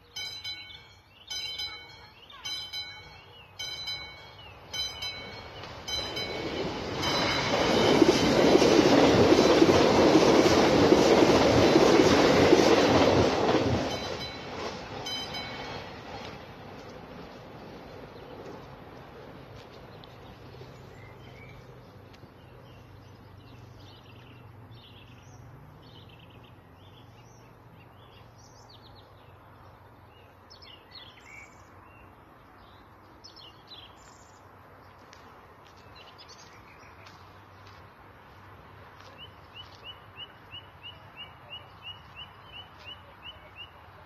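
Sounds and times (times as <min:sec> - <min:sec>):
songbirds chirping and trilling: 0:19.9 - 0:37.7.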